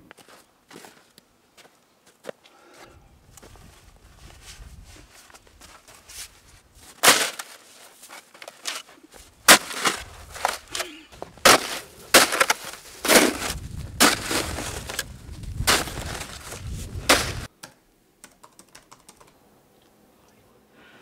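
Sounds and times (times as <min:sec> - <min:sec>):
snow shovel scraping ice: 0:06.0 - 0:17.5.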